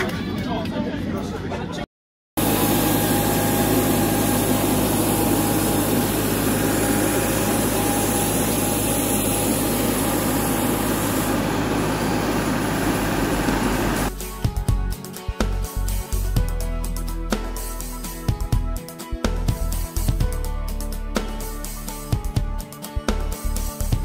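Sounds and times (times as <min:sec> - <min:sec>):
engines humming and whining: 0:02.4 - 0:14.1.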